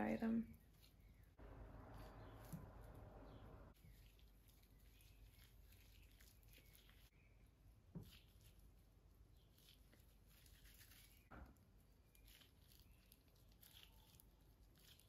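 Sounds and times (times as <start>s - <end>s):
gloved fingers squishing wet hair: 3.8s - 15.0s.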